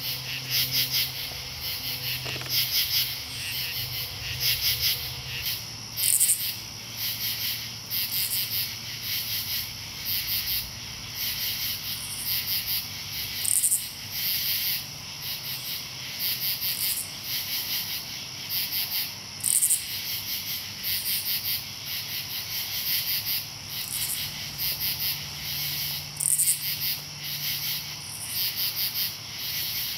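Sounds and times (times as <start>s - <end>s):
katydids chorus calling: 0.0s - 6.6s
high-pitched katydid calls: 0.0s - 14.8s, 22.1s - 29.9s.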